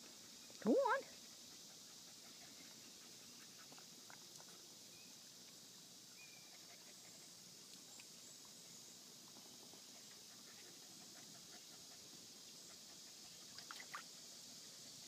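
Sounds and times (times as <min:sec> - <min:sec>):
faint outdoor hiss: 0:00.0 - 0:15.0
faint soft ticks: 0:07.6 - 0:08.2.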